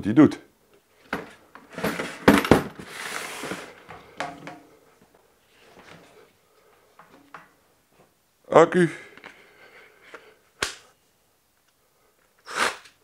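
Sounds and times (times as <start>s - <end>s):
plastic scraping over metal: 1.2s - 3.9s.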